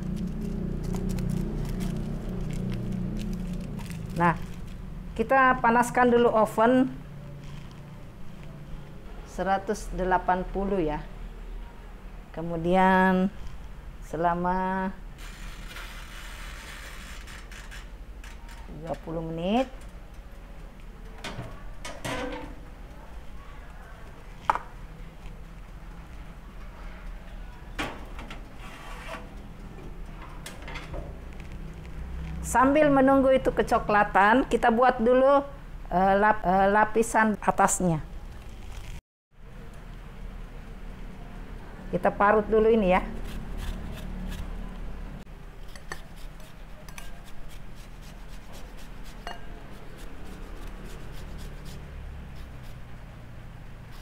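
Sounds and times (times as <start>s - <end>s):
grater scraping peel: 15.2s - 17.9s, 43.1s - 44.6s, 45.7s - 52.9s.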